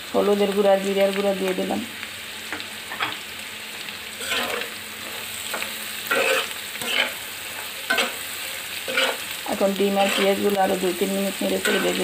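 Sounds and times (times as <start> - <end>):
food sizzling in a pan: 0.0 - 12.0
utensil scraping a pan: 4.2 - 9.3, 10.0 - 10.6.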